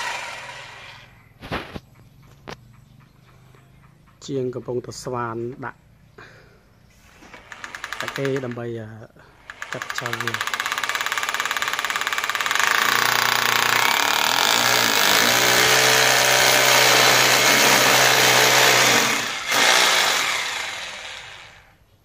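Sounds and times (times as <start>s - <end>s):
hammer drill boring into concrete: 0.0s - 1.1s, 7.3s - 8.7s, 9.4s - 21.7s.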